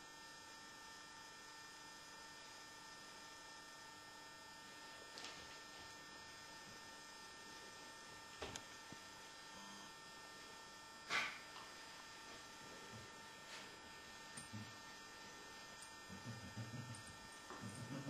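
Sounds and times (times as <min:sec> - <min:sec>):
faint electrical hum: 0:00.0 - 0:18.0.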